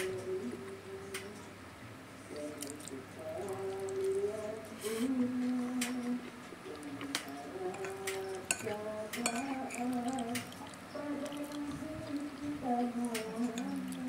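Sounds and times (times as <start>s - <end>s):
metal fork clicking on plate: 7.7s - 10.5s.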